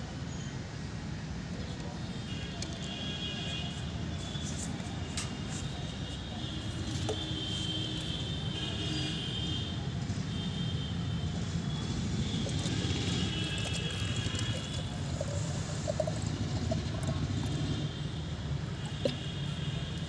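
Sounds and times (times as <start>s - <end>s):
water pouring into plastic bottle: 12.2s - 19.5s.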